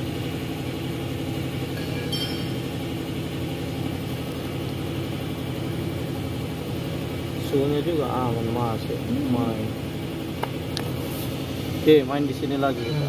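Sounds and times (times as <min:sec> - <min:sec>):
engine idling: 0:00.0 - 0:13.0
light metallic clink: 0:01.7 - 0:02.7.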